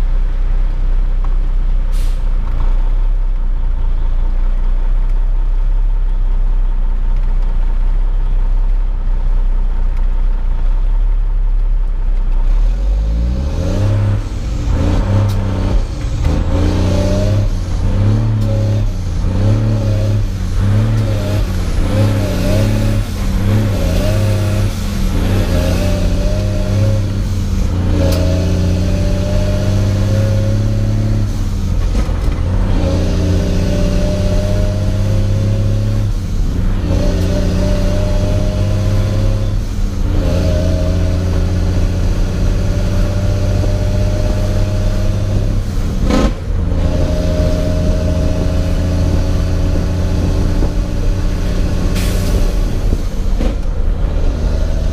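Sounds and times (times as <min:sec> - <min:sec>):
diesel truck engine under load: 0:00.0 - 0:54.9.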